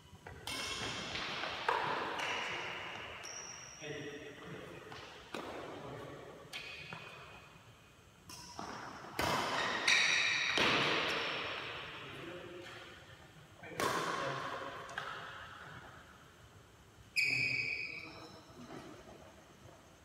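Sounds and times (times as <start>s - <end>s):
racket hitting shuttlecock: 0.2s - 3.3s, 4.9s - 7.4s, 8.3s - 13.0s, 13.8s - 15.7s.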